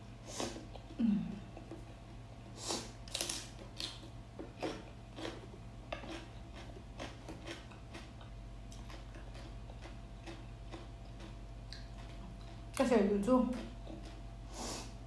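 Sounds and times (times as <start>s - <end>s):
chewing crunches: 3.0s - 12.8s, 13.5s - 14.5s.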